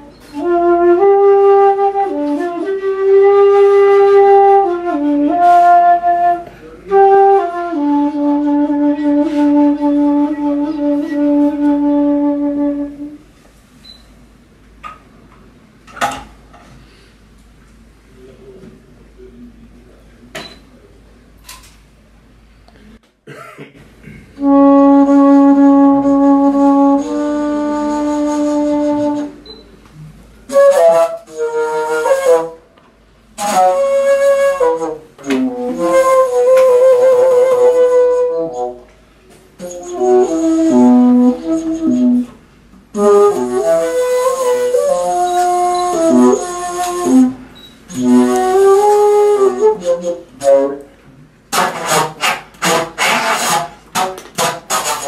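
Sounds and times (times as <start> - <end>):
low flute playing: 0.0 - 13.3, 24.4 - 32.7, 33.4 - 38.9, 39.6 - 50.9.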